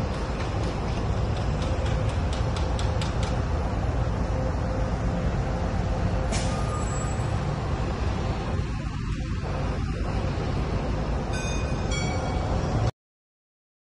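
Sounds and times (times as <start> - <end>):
traffic rumble: 0.0 - 12.9
bus air brakes hissing: 6.2 - 7.4.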